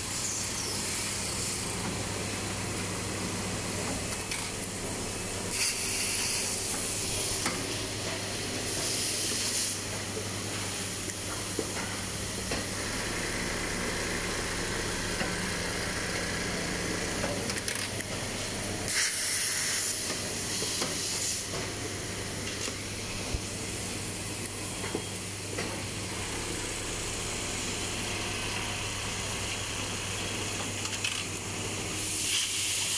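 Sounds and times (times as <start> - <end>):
sewing machinery humming: 12.1 - 18.8
compressed-air hiss: 18.9 - 21.5.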